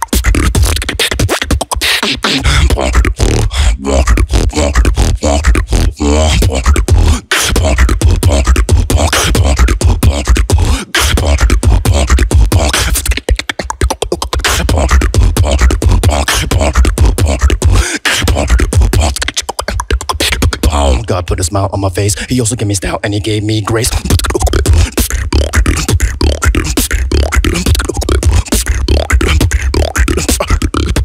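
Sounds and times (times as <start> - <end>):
beatboxing into a microphone: 0.0 - 31.0.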